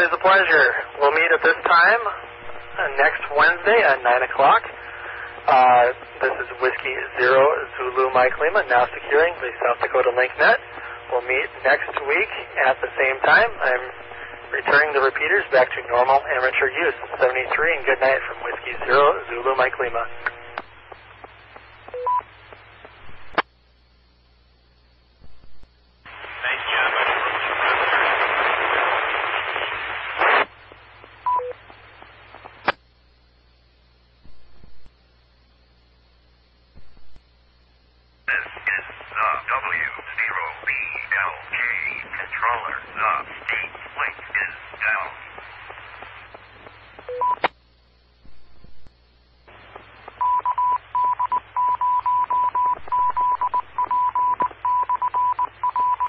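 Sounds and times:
radio static: 0.0s - 23.6s, 25.2s - 32.9s, 34.2s - 35.0s, 38.1s - 56.0s
radio click: 15.6s - 23.6s, 25.2s - 32.9s, 36.7s - 37.3s, 38.3s - 47.6s, 52.1s - 56.0s
radio repeater beeps: 21.8s - 22.3s, 31.2s - 31.6s, 47.0s - 47.5s, 50.1s - 56.0s
morse code tone: 22.0s - 22.2s, 50.2s - 56.0s
faint hiss: 25.8s - 50.2s.

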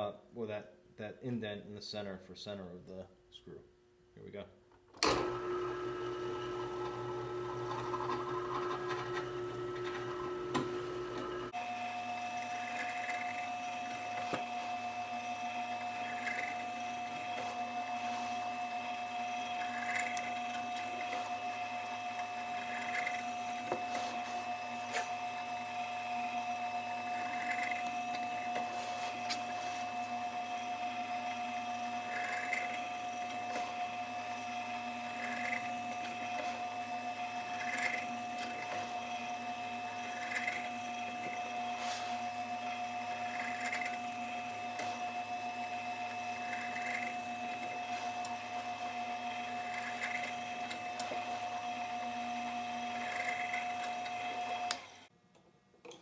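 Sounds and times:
drill press motor running: 5.0s - 55.1s
drill bit cutting into plywood: 10.4s - 55.1s.

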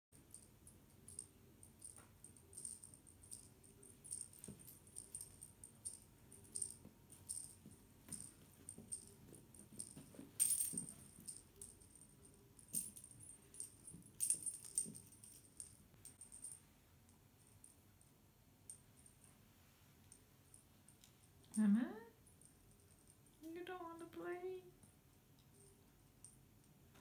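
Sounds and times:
cat toy jingling and rattling: 1.0s - 16.6s.

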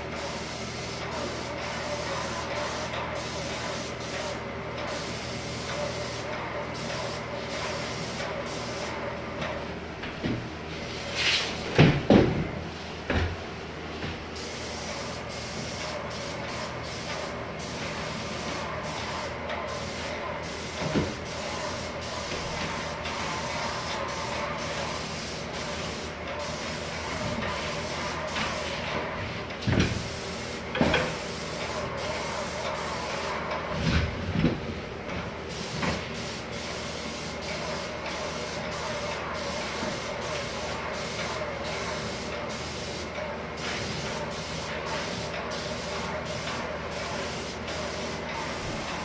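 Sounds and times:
paint sprayer hissing: 0.0s - 9.1s, 14.4s - 29.2s, 29.9s - 33.8s, 35.5s - 49.0s.

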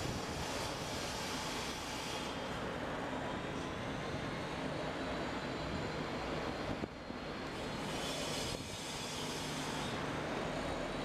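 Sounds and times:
road traffic noise: 0.0s - 11.0s.

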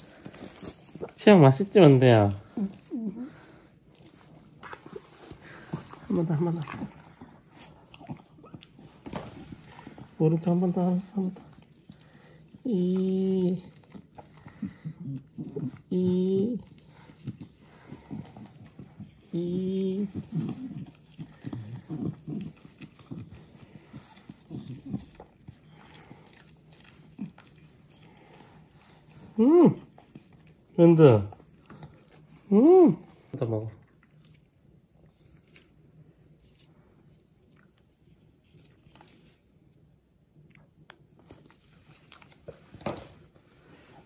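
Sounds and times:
dog chewing and smacking: 0.0s - 44.0s.

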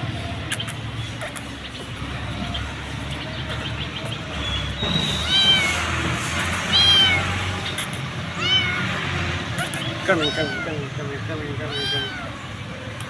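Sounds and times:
kitten meowing: 5.1s - 11.0s, 11.6s - 13.0s.

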